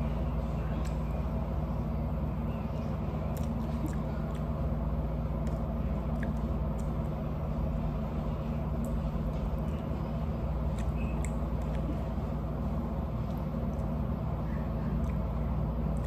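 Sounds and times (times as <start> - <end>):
air conditioner humming: 0.0 - 16.0
chewing clicks and smacks: 0.6 - 1.1, 3.2 - 4.7, 5.3 - 7.2, 8.7 - 10.0, 10.6 - 12.2, 13.2 - 14.1, 14.9 - 16.0.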